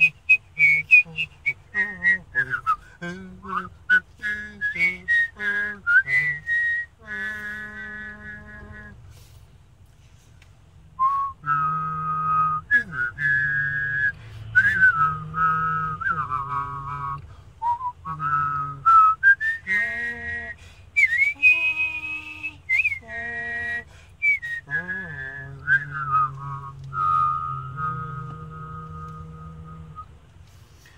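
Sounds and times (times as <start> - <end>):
person whistling a melody: 0.0 - 9.0, 11.0 - 30.1
person humming a low note: 24.5 - 30.0.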